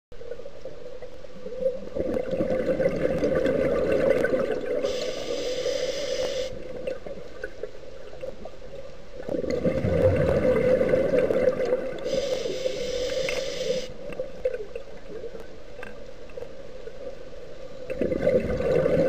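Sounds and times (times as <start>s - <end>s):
exhaled bubbles gurgling: 1.3s - 15.4s, 17.8s - 19.0s
regulator inhalation hiss: 4.8s - 6.6s, 12.0s - 14.0s
steady hum: 4.8s - 6.8s, 11.9s - 14.1s.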